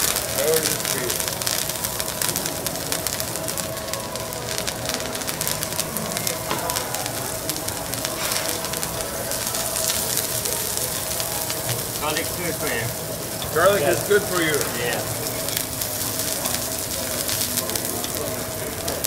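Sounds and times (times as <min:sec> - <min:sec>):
oil sizzling on griddle: 0:00.0 - 0:19.0.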